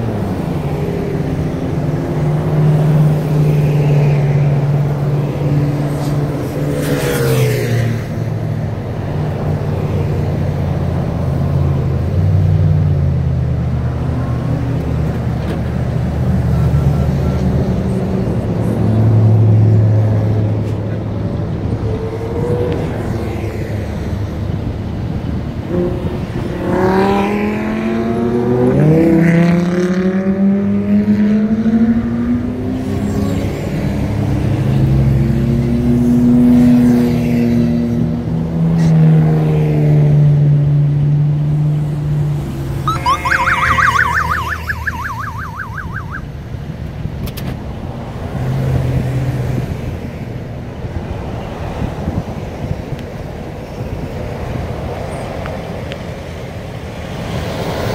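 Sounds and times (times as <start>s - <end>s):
highway traffic passing: 0.0s - 57.9s
emergency siren warbling: 42.8s - 46.4s.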